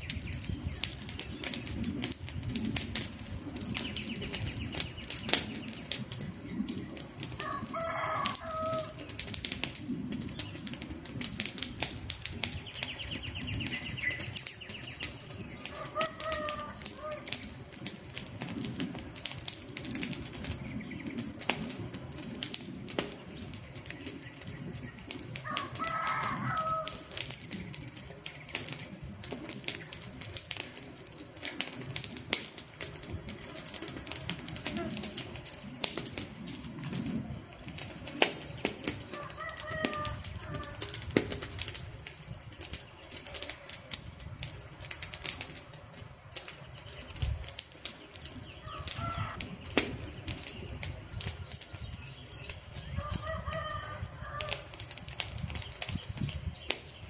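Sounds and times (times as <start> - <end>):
campfire crackling and popping: 0.0 - 57.0
bird calling: 12.6 - 17.4, 48.0 - 54.7.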